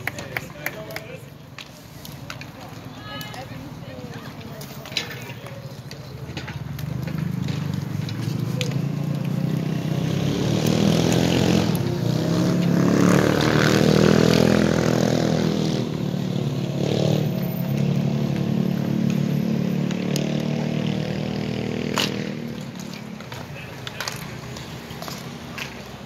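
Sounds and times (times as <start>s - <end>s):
sharp clacks: 0.0s - 3.6s, 21.8s - 25.9s.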